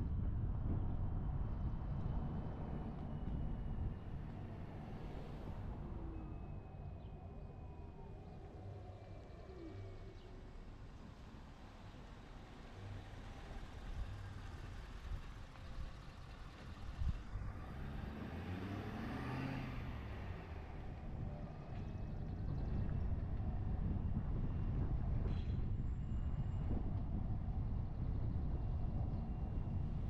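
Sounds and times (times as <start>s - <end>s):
engine and road rumble: 0.0s - 30.0s
pickup truck driving past: 17.4s - 21.1s.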